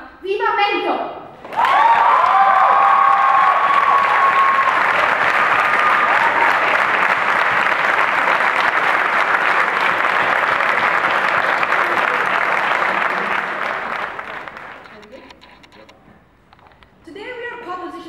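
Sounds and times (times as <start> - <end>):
audience applauding: 1.4 - 15.2.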